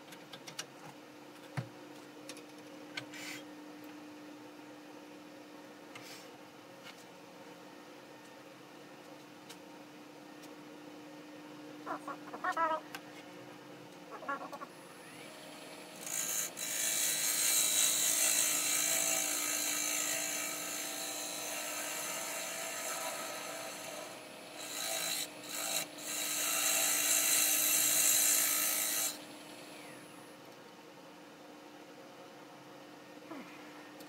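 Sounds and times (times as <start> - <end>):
wood lathe low hum: 14.7 - 30.4.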